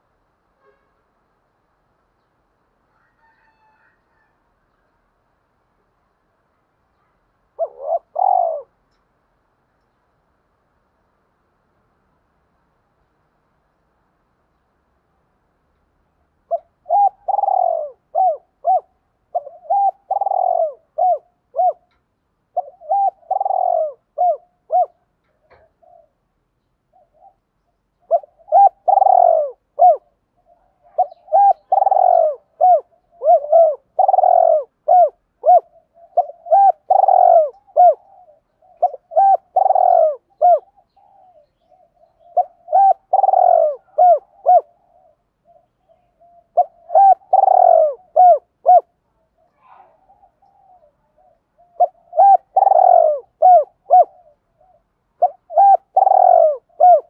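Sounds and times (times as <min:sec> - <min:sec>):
dove cooing: 0:07.5 - 0:09.0, 0:16.4 - 0:26.3, 0:26.9 - 0:57.0.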